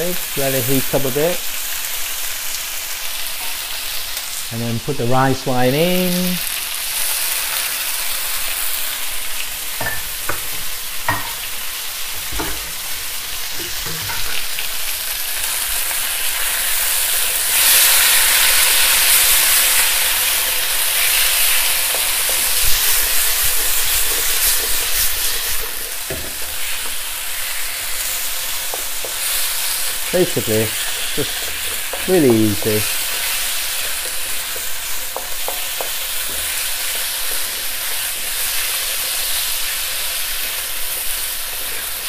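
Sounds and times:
food sizzling in a wok: 0.0 - 42.0
wooden spatula knocking on pan: 11.1 - 11.5, 12.3 - 12.8, 26.1 - 27.0, 33.0 - 36.5.

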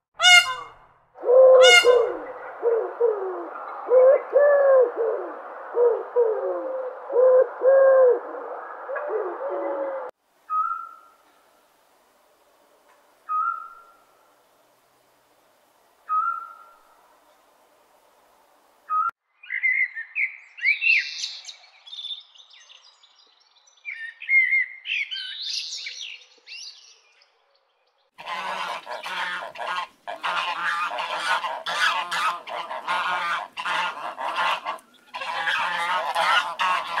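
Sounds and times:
ducks quacking: 0.2 - 0.7, 28.2 - 37.0.

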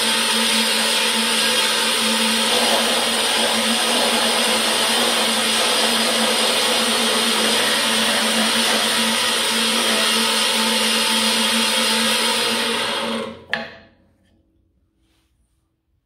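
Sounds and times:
band saw cutting wood: 0.0 - 13.6
motor hum: 0.0 - 13.6.

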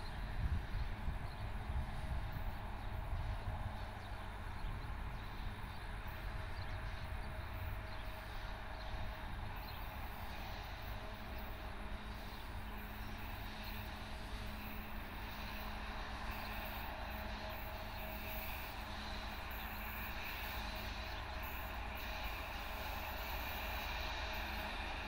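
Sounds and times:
wind rumbling on microphone: 0.0 - 9.6
distant locomotive engine drone: 0.0 - 25.0.

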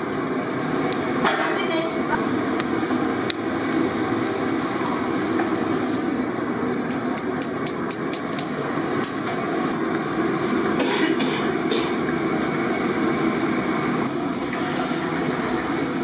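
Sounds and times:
gas burner rushing: 0.0 - 16.0.

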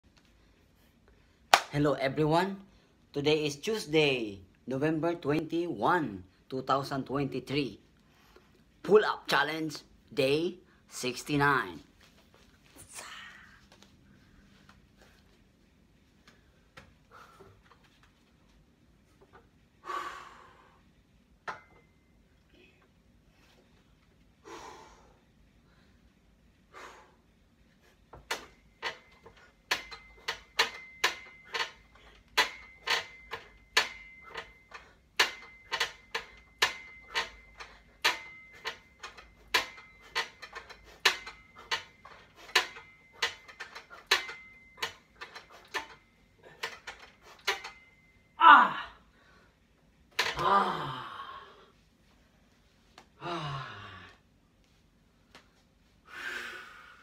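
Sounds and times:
metal frame clicking and knocking: 28.2 - 48.0.

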